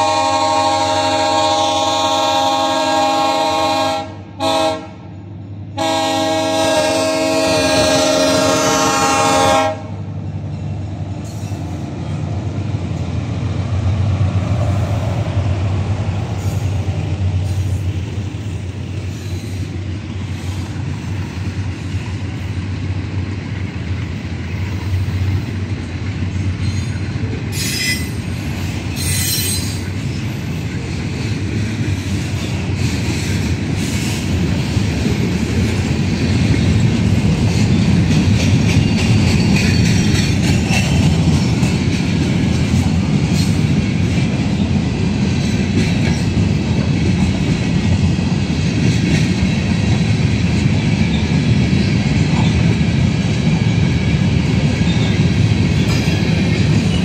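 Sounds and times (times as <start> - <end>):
locomotive air horn blasts: 0.0 - 5.1, 5.8 - 10.0
freight train rumble: 0.0 - 57.0.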